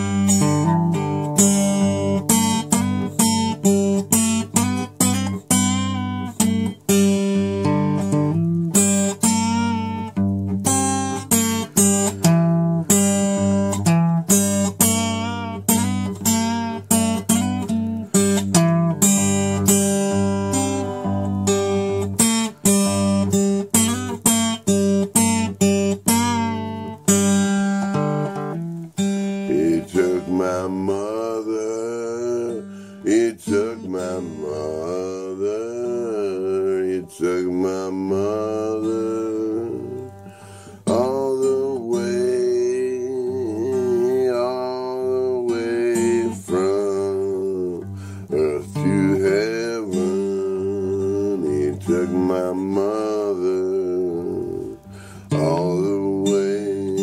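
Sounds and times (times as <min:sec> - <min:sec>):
acoustic guitar strumming: 0:00.0 - 0:57.0
man singing gospel song: 0:29.4 - 0:57.0.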